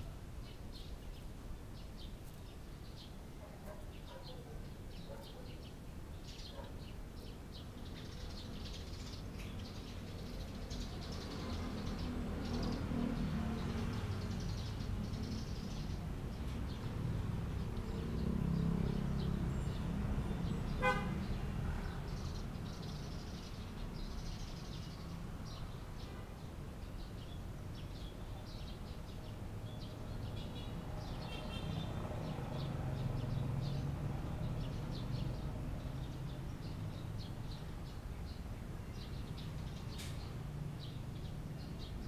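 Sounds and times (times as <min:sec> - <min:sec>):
distant traffic rumble: 0:00.0 - 0:42.0
small birds chirping: 0:00.0 - 0:42.0
vehicle horn toot: 0:20.8 - 0:21.2.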